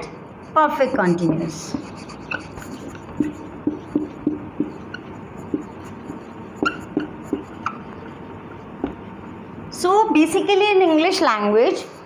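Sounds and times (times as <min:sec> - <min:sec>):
marker squeaking on a whiteboard: 0:00.6 - 0:09.0.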